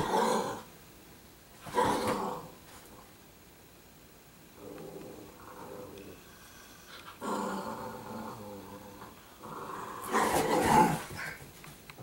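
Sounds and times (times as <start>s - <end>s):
dogs growling in play: 0.0s - 0.7s, 1.6s - 3.1s, 4.5s - 11.5s.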